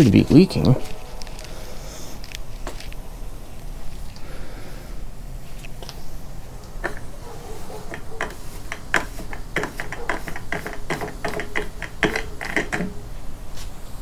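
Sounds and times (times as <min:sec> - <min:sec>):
plastic fuel cap clicking: 0:06.8 - 0:07.1, 0:07.9 - 0:13.0.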